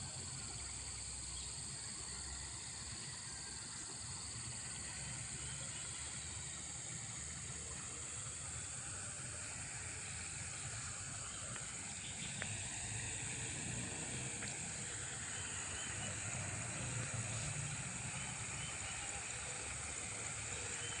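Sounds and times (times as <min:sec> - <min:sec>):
high hiss: 0:00.0 - 0:21.0.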